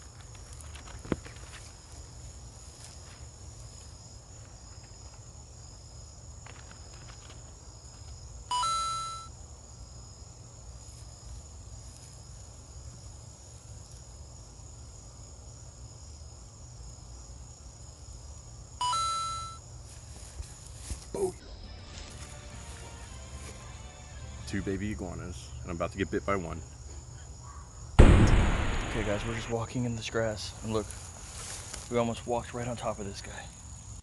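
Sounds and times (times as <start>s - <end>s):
crickets trilling: 0.0s - 34.0s
bright ringing tone: 8.5s - 9.3s, 18.8s - 19.6s.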